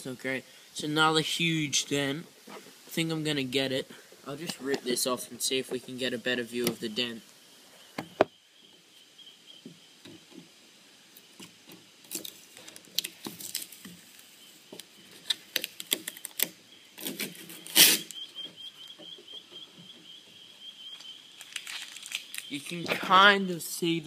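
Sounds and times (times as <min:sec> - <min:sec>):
plastic bottle crackling: 0:12.0 - 0:18.2, 0:21.4 - 0:22.5
plastic tearing: 0:12.1 - 0:14.3, 0:15.1 - 0:18.2, 0:21.4 - 0:22.5.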